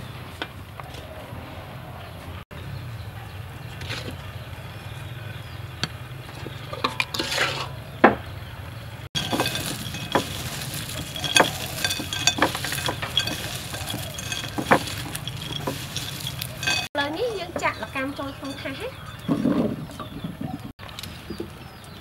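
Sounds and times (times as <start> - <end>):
peanuts rattling in ceramic bowl: 9.2 - 19.2.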